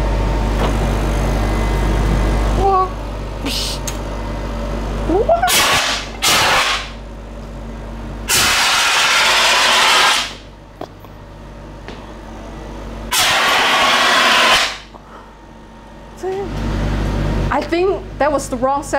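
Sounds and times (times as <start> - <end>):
steady low hum: 0.0 - 18.9
fire extinguisher hissing blasts: 13.1 - 14.8.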